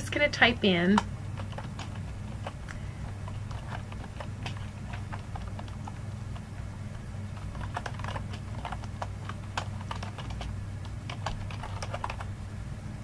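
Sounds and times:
steady low hum: 0.0 - 13.0
keyboard key clicks: 7.4 - 12.3.

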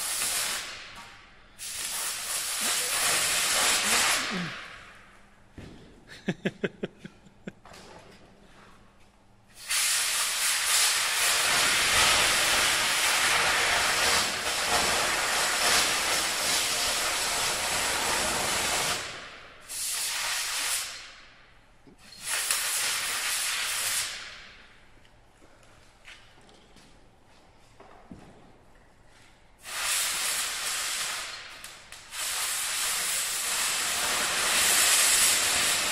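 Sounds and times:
cutting torch hissing: 1.6 - 4.7, 32.1 - 35.9.

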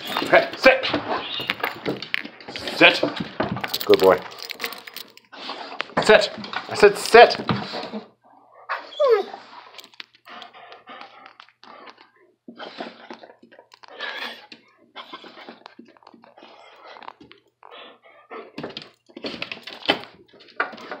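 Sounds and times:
dog huffing and jaw chattering: 9.6 - 21.0.

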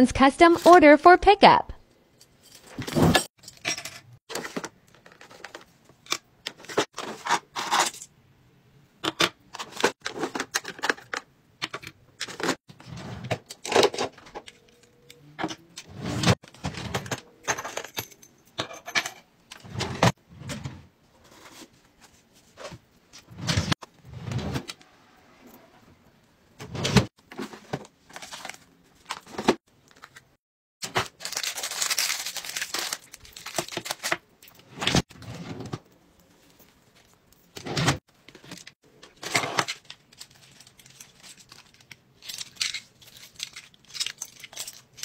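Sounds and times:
plastic keychain parts clattering: 39.6 - 45.0.

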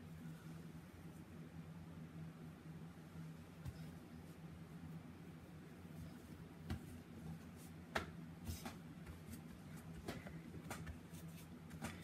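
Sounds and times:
low steady hum: 0.0 - 12.0
hands patting dough on counter: 6.6 - 12.0.

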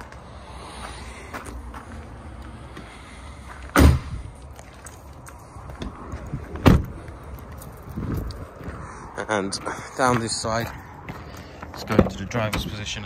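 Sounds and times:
van doors slamming: 3.7 - 4.2, 6.5 - 7.0.

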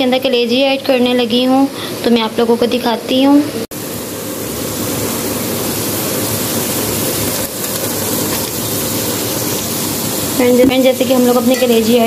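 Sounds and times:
liver sizzling in hot oil: 3.8 - 12.0.

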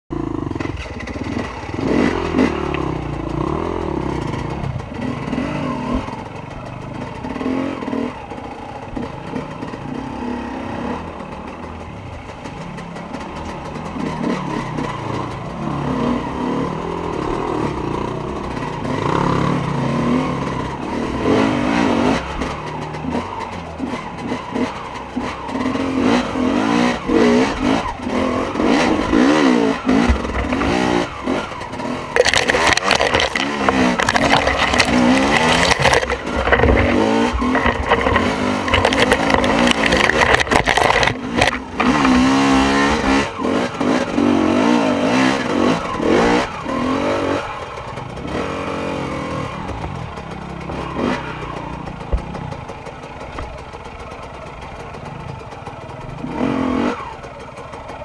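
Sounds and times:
dirt bike engine revving: 0.1 - 58.0
bike knocking and clattering: 28.6 - 43.6, 49.6 - 56.5.

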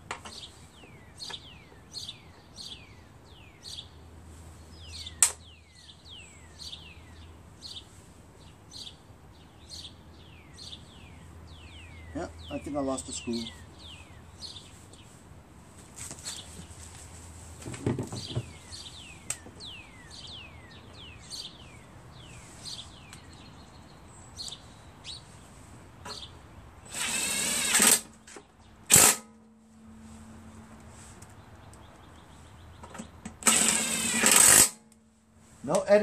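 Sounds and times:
bird chirping: 0.3 - 15.2, 18.1 - 28.9, 29.6 - 34.3
cordless drill driving screws: 26.9 - 28.1, 33.4 - 34.8.

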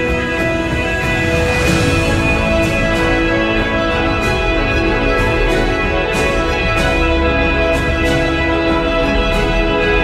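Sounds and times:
layered chord music: 0.0 - 10.0.

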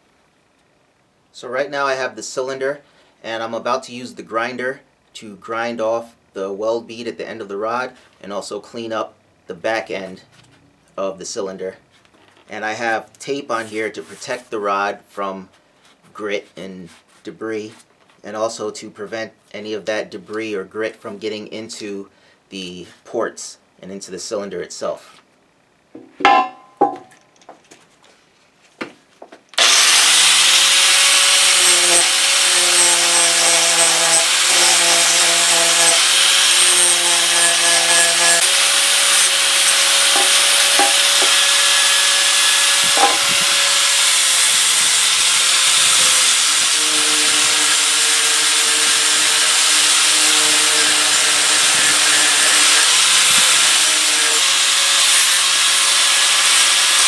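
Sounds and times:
handling knocks: 26.0 - 27.1
angle grinder grinding metal: 29.6 - 57.0.

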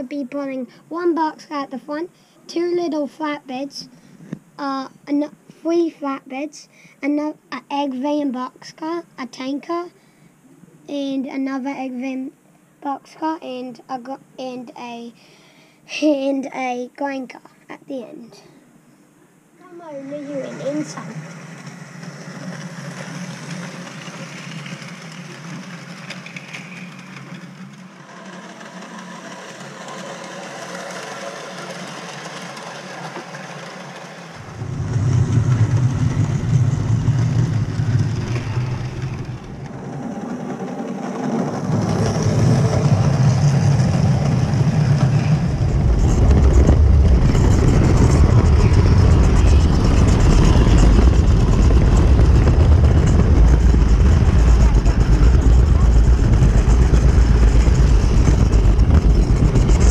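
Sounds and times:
model train motor hum: 19.6 - 59.9.

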